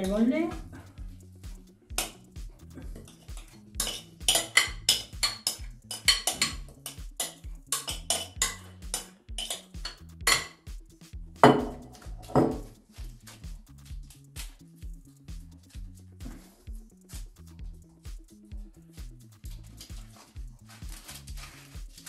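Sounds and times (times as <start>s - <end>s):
background music with steady beat: 0.0s - 22.0s
metal spoon scraping glass bowl: 3.0s - 10.5s.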